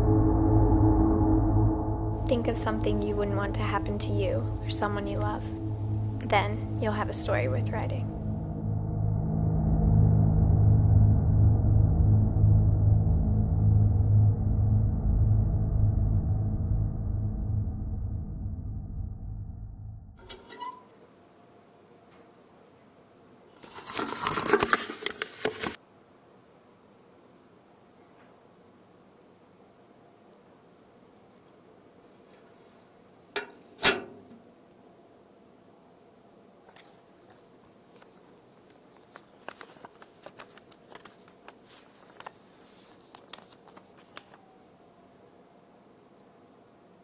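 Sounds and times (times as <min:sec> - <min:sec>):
short tone: 0:00.0 - 0:14.3
rustling and crackling: 0:36.6 - 0:44.4.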